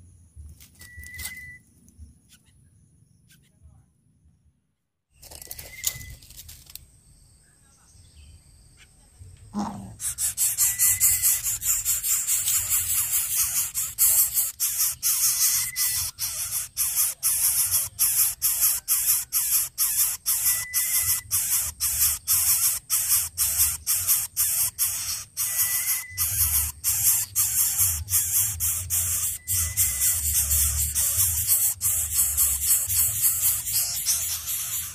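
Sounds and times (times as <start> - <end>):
faint short beep: 0.8 - 1.7.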